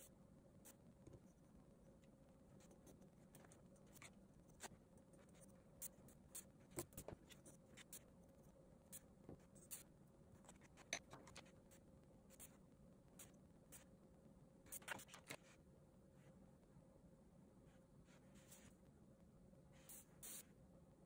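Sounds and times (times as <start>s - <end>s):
pen scratching on paper: 2.5s - 12.6s.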